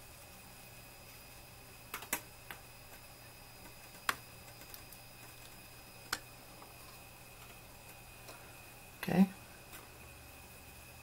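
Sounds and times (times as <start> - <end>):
faint high whine: 0.0 - 11.0
sharp light clicks and taps: 1.9 - 6.3.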